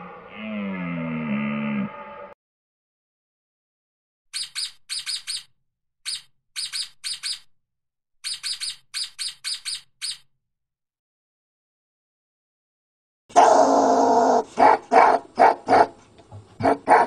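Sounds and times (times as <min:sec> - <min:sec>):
ermine chirping squeaks: 0:04.4 - 0:07.5, 0:08.2 - 0:10.3.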